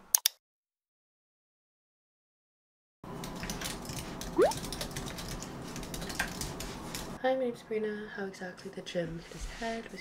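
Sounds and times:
computer keyboard typing: 3.3 - 7.0.

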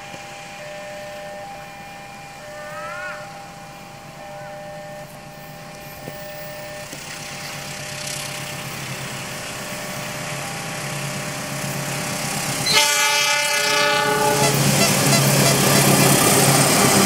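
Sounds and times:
diesel locomotive running: 0.0 - 17.0
train horn chord: 0.8 - 6.8, 12.6 - 15.9.

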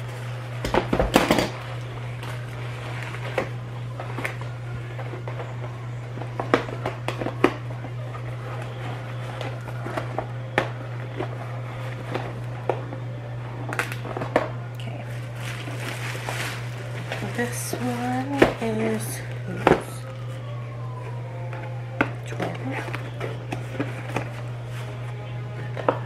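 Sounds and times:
steady low hum: 0.0 - 26.0
takeout packaging rustling: 13.7 - 26.0.

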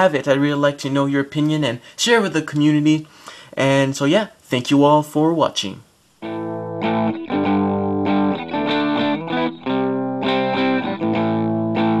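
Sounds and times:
distorted electric guitar chords: 6.2 - 12.0.

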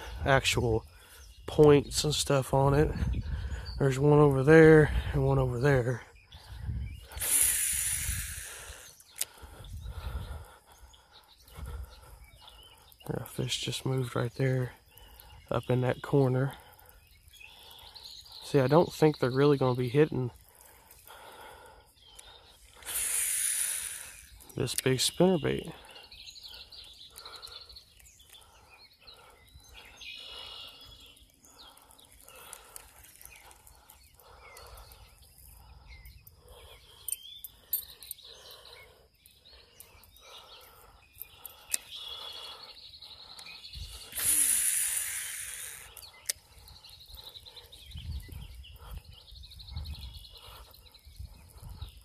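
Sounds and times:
bird chirps: 0.8 - 52.0
loud hiss: 7.1 - 9.0, 22.8 - 24.4, 43.8 - 46.0.

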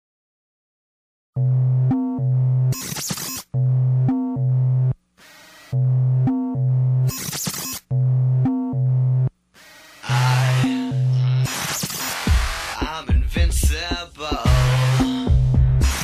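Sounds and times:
short noisy bursts: 11.4 - 13.0, 15.8 - 16.0.

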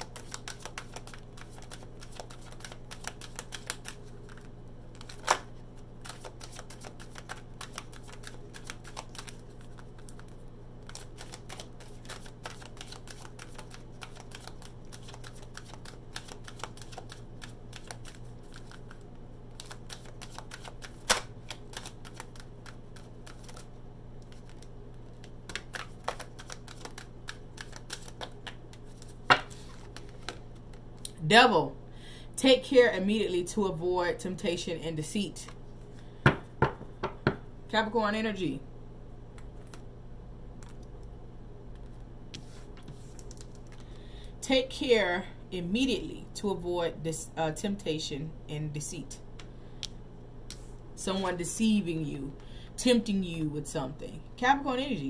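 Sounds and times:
cards being shuffled: 0.0 - 30.8, 41.8 - 43.9
low steady hum: 0.0 - 55.0.

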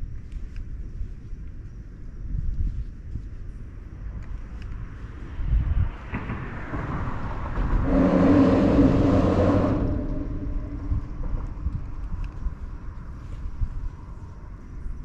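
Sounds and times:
low uneven rumble: 0.0 - 15.0
motor vehicle passing by: 5.0 - 12.0.

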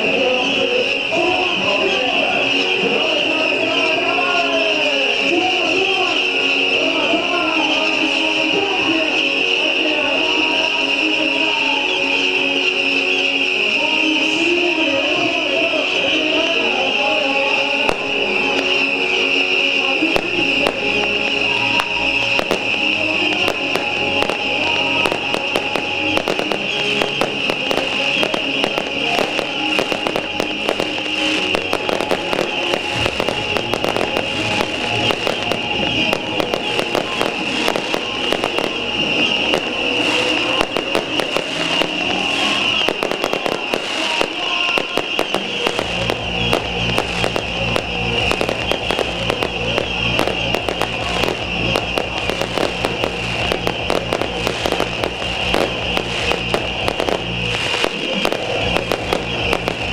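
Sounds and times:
music: 0.0 - 59.9
fireworks crackling pops: 20.1 - 59.9
rockets hissing: 22.2 - 59.9.

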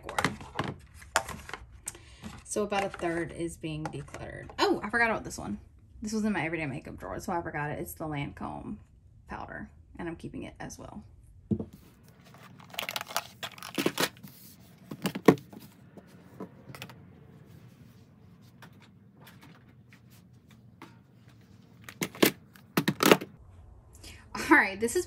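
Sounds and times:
plastic cases clicking and clacking: 21.8 - 23.3.

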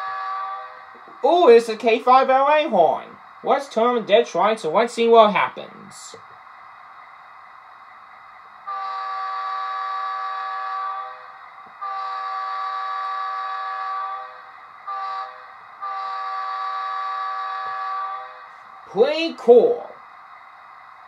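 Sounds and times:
train horn through small speaker: 0.0 - 0.9, 8.6 - 18.6
faint steady background noise: 0.7 - 9.0, 17.6 - 21.0.

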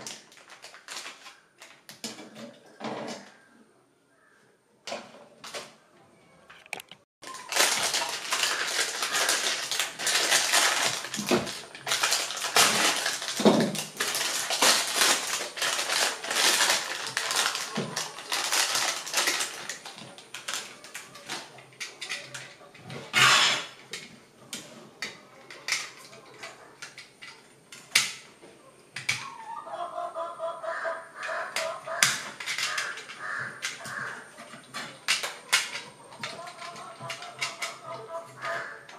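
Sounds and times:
plastic wrapper crinkling: 0.0 - 2.0, 6.6 - 22.6, 31.6 - 38.9.

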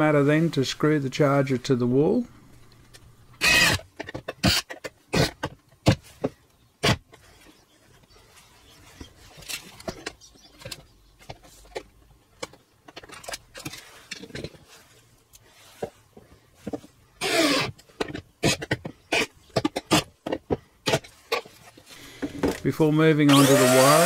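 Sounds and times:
handling noises: 2.5 - 23.3
cordless drill clicks: 23.3 - 24.0.

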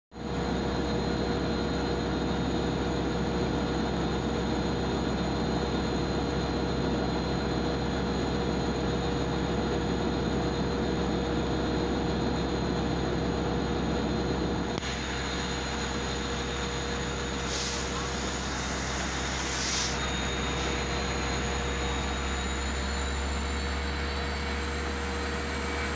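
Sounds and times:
locomotive engine rumble: 0.2 - 25.9
constant whining tones: 14.5 - 25.9
high hiss: 17.4 - 20.1.

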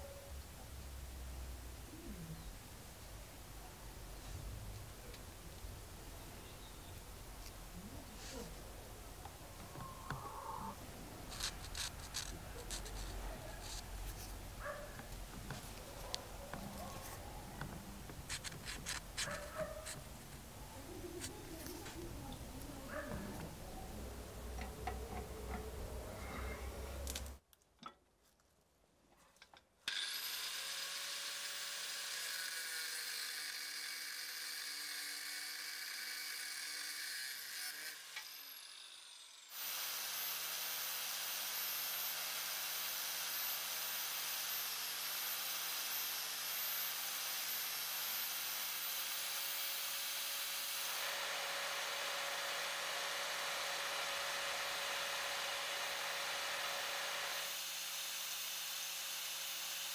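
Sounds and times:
angle grinder whining: 9.6 - 27.2, 29.9 - 59.9.

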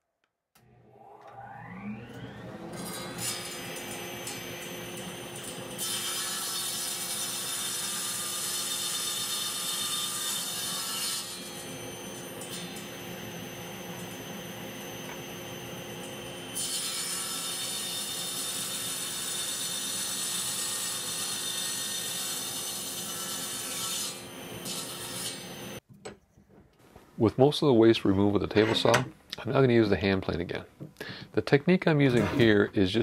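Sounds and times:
table saw ripping wood: 0.8 - 25.8.

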